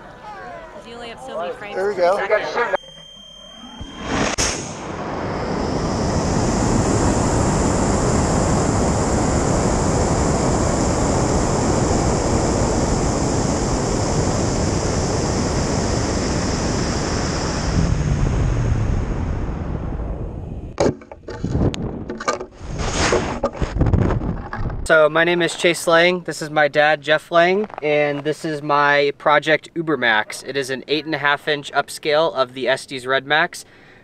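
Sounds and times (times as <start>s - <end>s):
rocket motor ignition burst: 3.7s - 18.9s
rocket roar and rushing air: 3.8s - 24.4s.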